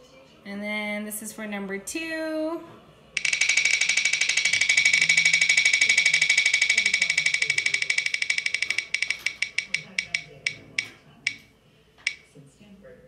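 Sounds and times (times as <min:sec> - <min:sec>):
spinning wheel ticking clicks: 0:03.2 - 0:11.4, 0:12.0 - 0:12.2.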